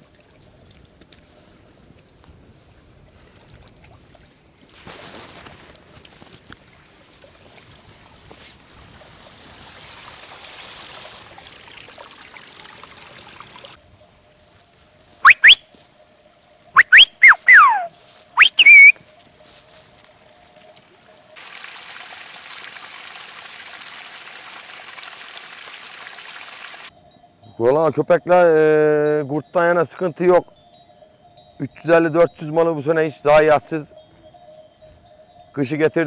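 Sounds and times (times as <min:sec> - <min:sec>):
water splashing in a stream: 0:00.0 - 0:00.8, 0:03.2 - 0:13.8, 0:20.5 - 0:26.9
whistle-like chirping calls: 0:15.2 - 0:15.7, 0:16.8 - 0:19.0.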